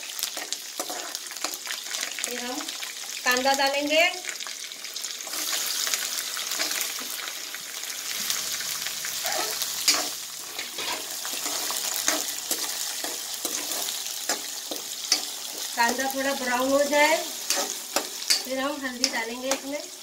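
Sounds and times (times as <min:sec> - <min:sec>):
onions sizzling in hot oil: 0:00.0 - 0:20.0
metal ladle scraping a pan: 0:00.4 - 0:01.6, 0:09.2 - 0:19.7.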